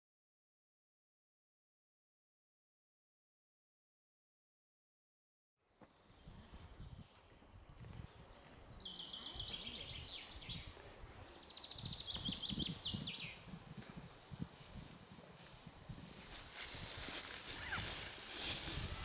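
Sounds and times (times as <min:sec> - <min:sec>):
songbird trilling: 0:11.5 - 0:13.8.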